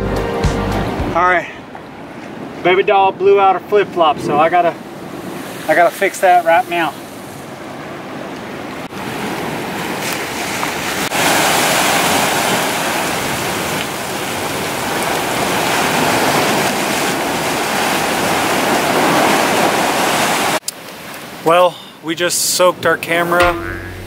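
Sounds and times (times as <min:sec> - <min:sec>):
ocean surf breaking on rocks: 0:04.2 - 0:21.7.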